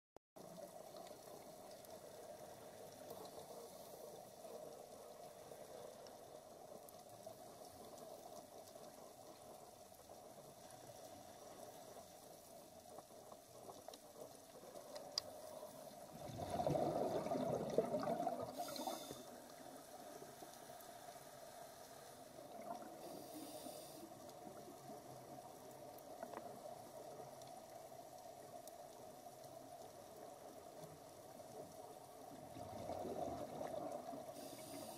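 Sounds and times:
faint underwater rushing hiss: 0:15.3 - 0:25.4, 0:34.0 - 0:34.9
scuba exhaled bubbles: 0:15.9 - 0:19.7, 0:32.4 - 0:34.9.

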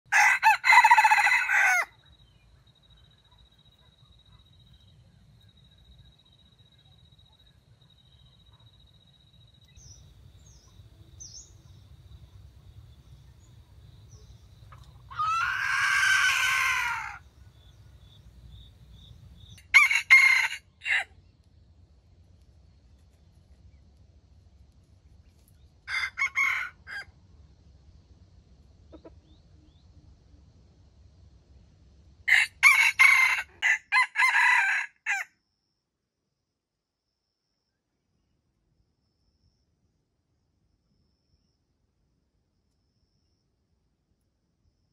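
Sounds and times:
rooster crowing: 0:00.1 - 0:02.0, 0:15.1 - 0:17.3, 0:19.6 - 0:21.1, 0:25.9 - 0:27.1, 0:32.3 - 0:35.3.

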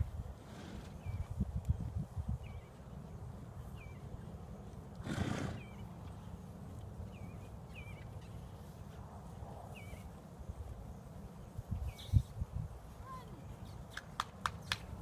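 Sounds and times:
horse snorting: 0:00.4 - 0:01.0, 0:04.9 - 0:05.8.

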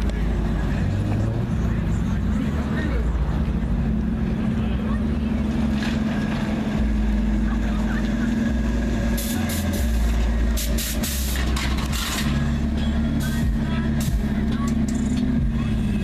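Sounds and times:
pickup truck driving past: 0:00.0 - 0:16.0
vehicle engines rumbling: 0:00.0 - 0:16.0.

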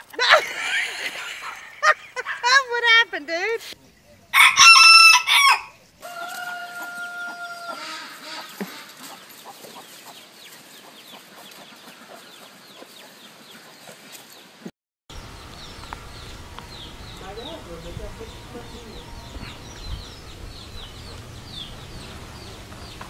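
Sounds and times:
rooster crowing: 0:04.3 - 0:08.4, 0:15.2 - 0:23.0.

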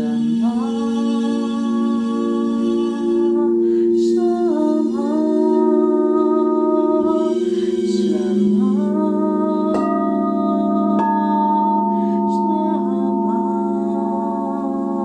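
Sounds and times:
crystal singing bowls ringing: 0:00.0 - 0:15.0
woman toning held notes: 0:03.3 - 0:15.0.

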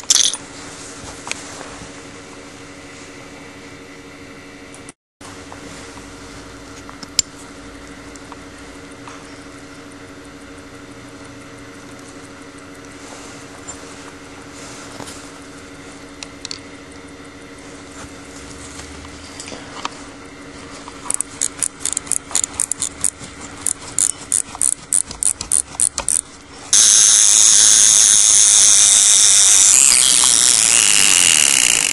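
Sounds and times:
watch crown clicking: 0:21.1 - 0:26.2
watch alarm buzzing: 0:23.6 - 0:31.9.

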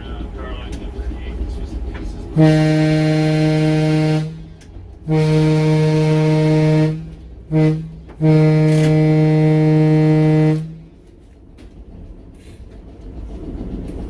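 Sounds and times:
train horn blasts: 0:02.3 - 0:11.0.

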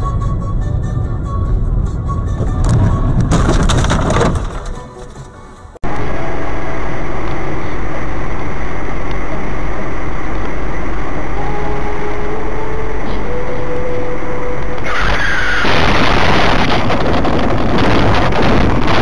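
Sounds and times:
car road and engine noise: 0:00.0 - 0:19.0
car collision: 0:02.4 - 0:05.8.

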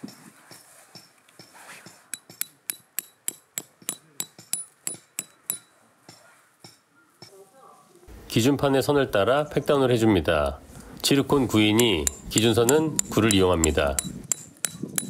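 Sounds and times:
hammer striking metal tent peg: 0:01.0 - 0:06.8, 0:11.6 - 0:15.0.

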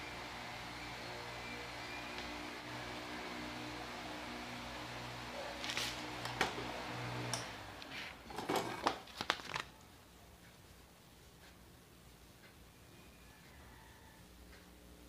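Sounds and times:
hair dryer humming: 0:00.0 - 0:07.9
rustling of hair being handled: 0:05.5 - 0:06.2.

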